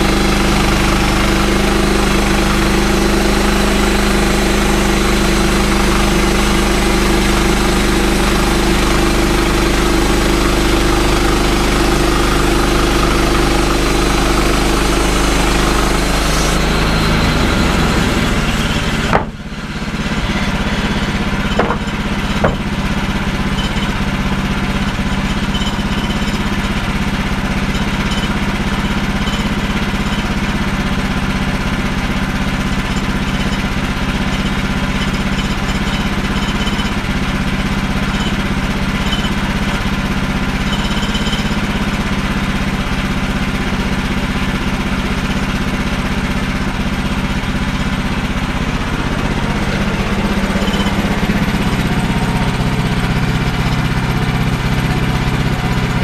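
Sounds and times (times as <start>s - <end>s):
sawmill engine running: 0.0s - 56.0s
short knocks: 19.1s - 19.4s, 21.5s - 22.8s.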